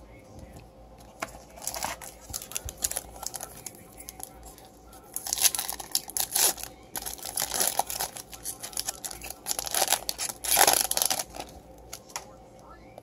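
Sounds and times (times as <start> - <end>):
foil wrapper tearing and crinkling: 1.5 - 4.4, 5.1 - 11.6.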